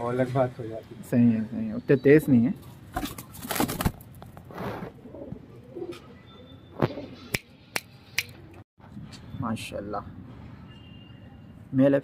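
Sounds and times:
pigeons cooing: 4.6s - 7.3s.

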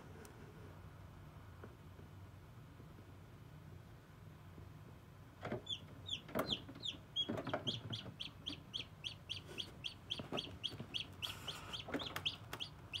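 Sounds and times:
chick peeping: 5.6s - 13.0s.

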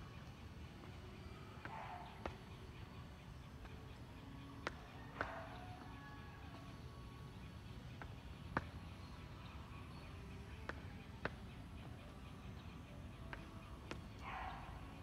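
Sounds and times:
outdoor background hum: 0.0s - 15.0s
footsteps on concrete: 0.8s - 2.8s, 4.6s - 6.7s, 7.9s - 9.2s, 13.2s - 14.2s.

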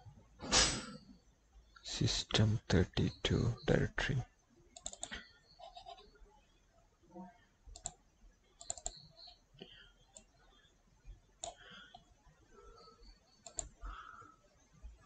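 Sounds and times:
computer mouse clicks: 4.8s - 5.3s, 7.7s - 8.0s, 8.6s - 10.3s, 11.4s - 12.1s, 13.4s - 13.8s.

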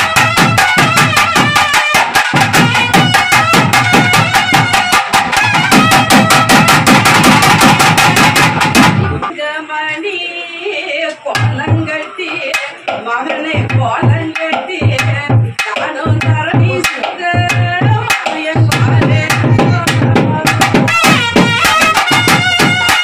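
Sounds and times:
reed pipe melody: 0.0s - 7.1s, 20.9s - 23.0s.

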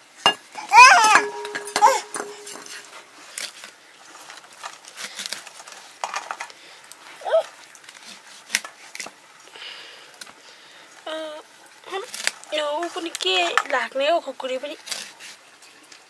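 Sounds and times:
cooking utensils clinking: 0.1s - 3.0s.

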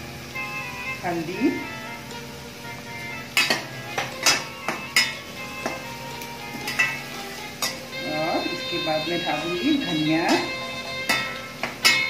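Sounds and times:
faint background music: 0.0s - 12.0s
spatula clinking against metal pan: 3.4s - 5.8s, 6.6s - 7.0s, 7.6s - 7.8s, 10.2s - 12.0s.

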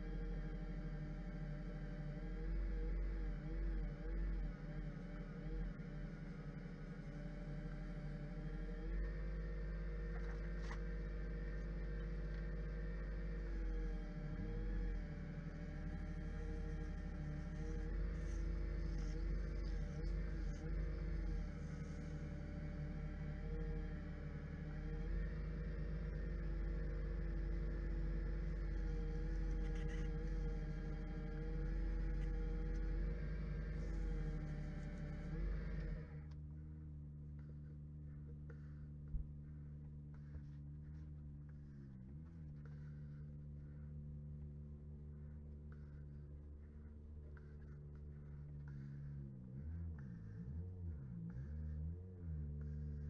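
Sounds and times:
lathe motor hum: 0.0s - 36.3s.

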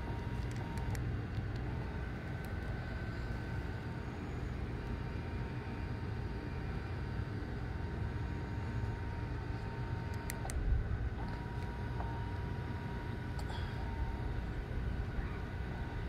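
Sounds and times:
low steady rumble: 0.0s - 16.0s.

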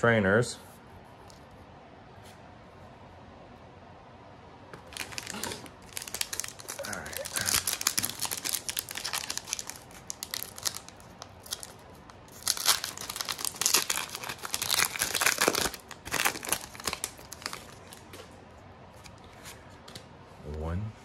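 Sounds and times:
foil wrapper crinkling and tearing: 4.8s - 18.2s.

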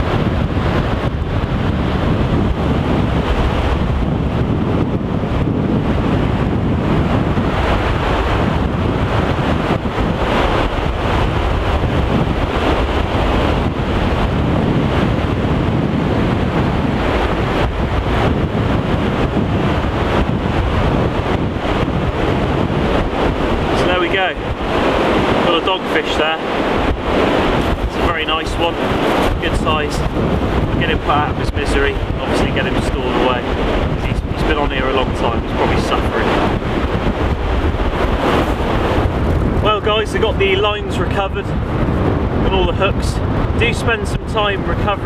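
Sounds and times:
wind buffeting microphone: 0.0s - 45.0s
shallow sea water washing: 16.2s - 41.0s.

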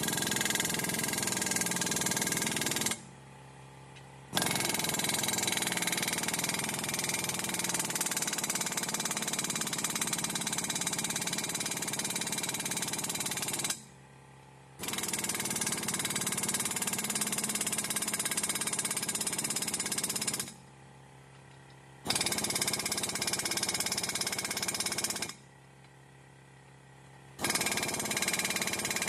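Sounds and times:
air impact wrench running: 27.4s - 29.0s.

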